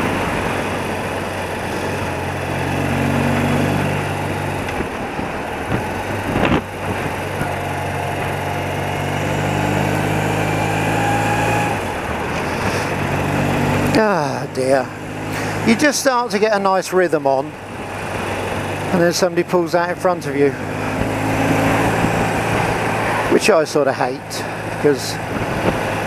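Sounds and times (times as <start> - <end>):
motorcycle engine running: 0.0 - 26.0
wind noise: 3.7 - 9.4, 20.8 - 23.4, 24.5 - 26.0.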